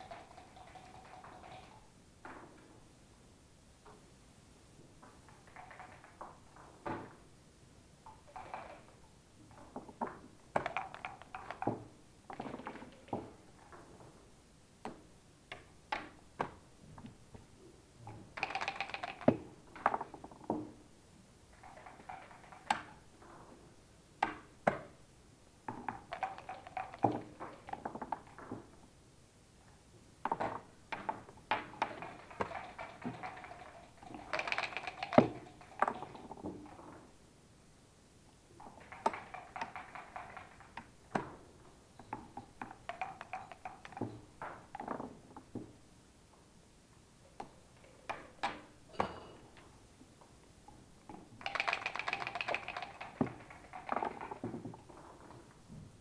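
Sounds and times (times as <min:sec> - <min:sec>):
checkers clicking: 0:00.0 - 0:01.8, 0:18.4 - 0:19.3, 0:26.0 - 0:27.7, 0:31.6 - 0:36.4, 0:38.7 - 0:40.8, 0:51.4 - 0:54.4
dice rattling in cups: 0:00.0 - 0:01.8, 0:10.6 - 0:11.7, 0:18.3 - 0:19.3, 0:21.6 - 0:23.0, 0:25.8 - 0:28.4, 0:31.0 - 0:36.8, 0:38.6 - 0:41.0, 0:42.2 - 0:44.8, 0:51.3 - 0:55.4.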